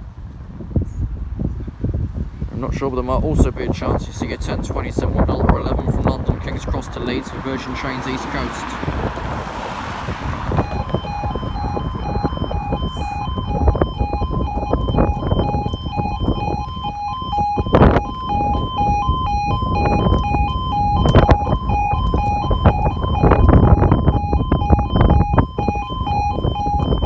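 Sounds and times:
wind rumble on microphone: 0.0s - 27.0s
two-tone level crossing alarm: 10.5s - 27.0s.

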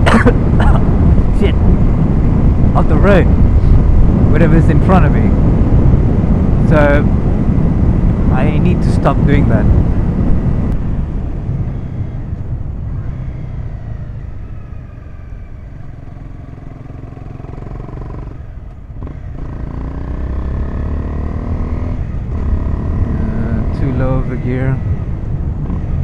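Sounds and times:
motorcycle engine running: 9.6s - 26.0s.

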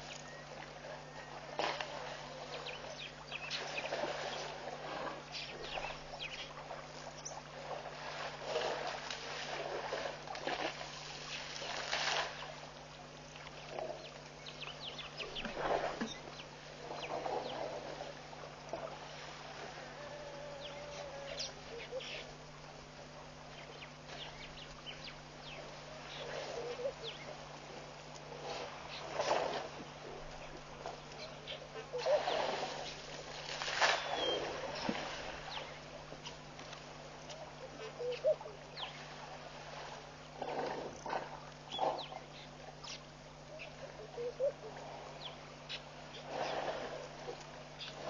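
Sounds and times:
bird calls: 0.0s - 4.5s, 5.3s - 7.5s, 13.6s - 17.7s, 20.0s - 22.4s, 23.4s - 27.4s, 30.3s - 33.1s, 33.7s - 36.4s, 37.3s - 39.1s, 41.7s - 46.6s
elephants splashing in water: 0.0s - 14.1s, 15.2s - 23.0s, 25.6s - 38.1s, 39.0s - 42.3s, 46.0s - 48.0s
steady low hum: 0.0s - 48.0s.

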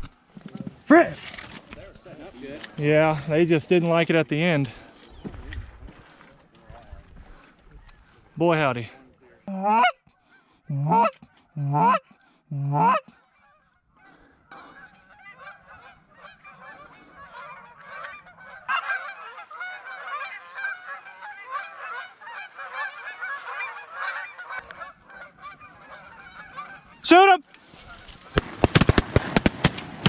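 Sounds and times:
geese honking: 9.5s - 28.4s.

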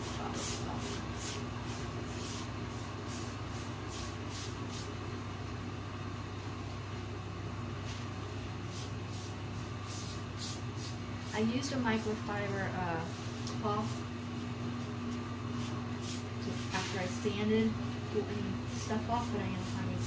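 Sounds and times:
electric fan humming: 0.0s - 20.0s
paintbrush swishes: 8.7s - 14.0s, 15.5s - 17.3s, 18.7s - 20.0s.

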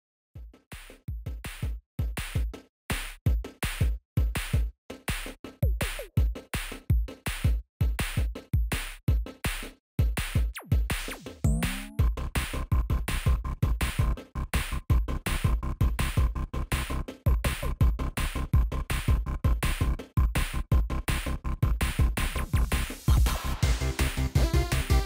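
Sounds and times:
electronic music: 10.6s - 12.5s, 21.2s - 25.0s
deep bass thumps: 11.5s - 12.2s.

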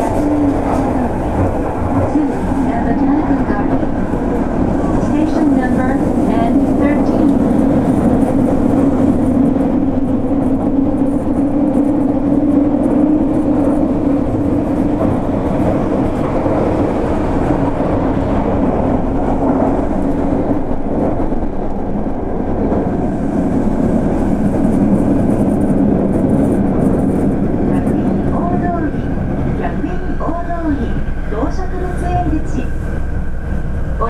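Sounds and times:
train wheels rumbling on rail: 0.0s - 34.0s.

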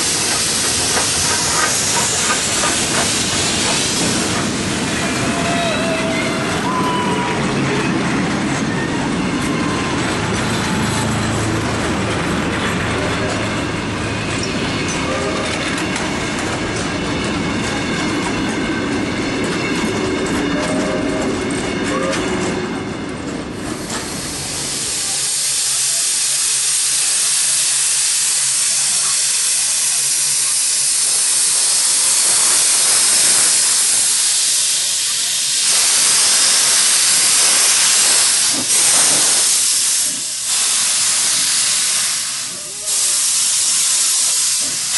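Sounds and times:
steam hissing: 0.0s - 9.0s, 23.6s - 44.9s
train carriages rumbling: 0.0s - 44.9s.

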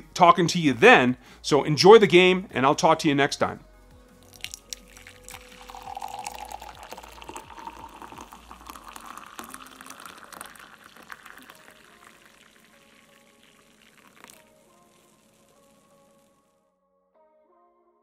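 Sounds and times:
coffee pouring into a mug: 4.2s - 16.4s.

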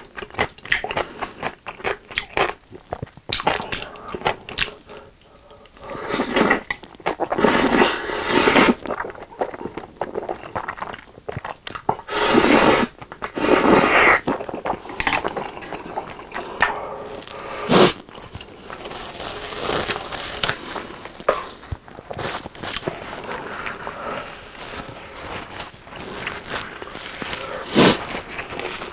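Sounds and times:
wet chewing: 0.0s - 19.0s, 19.8s - 28.9s
person slurping noodles: 3.4s - 18.3s, 22.7s - 28.9s.

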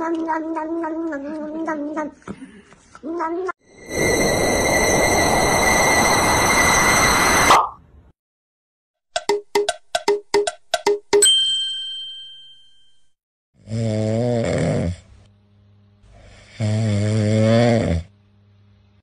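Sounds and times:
short plinking notes with ringing ding: 11.2s - 13.1s
person snoring: 13.6s - 15.1s, 16.1s - 18.1s.

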